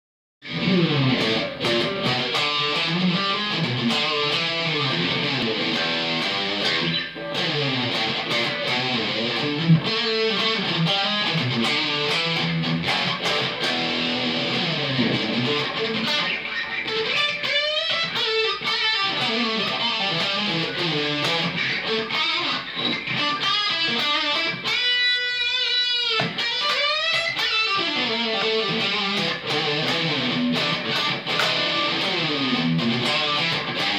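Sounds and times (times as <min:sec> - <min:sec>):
distorted electric guitar: 0:00.4 - 0:33.9.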